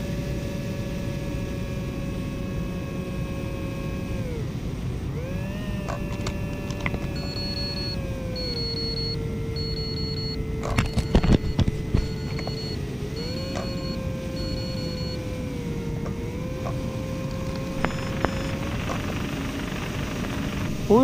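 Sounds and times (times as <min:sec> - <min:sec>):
electric motor and propeller whining: 0:00.0 - 0:21.0
wind rumble: 0:00.3 - 0:21.0
high electronic warning beeps: 0:06.8 - 0:15.2, 0:17.3 - 0:21.0.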